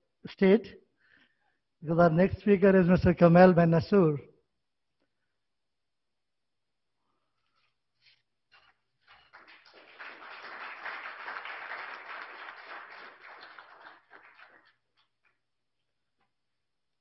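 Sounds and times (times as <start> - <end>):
audience applauding: 9.1 - 15.4.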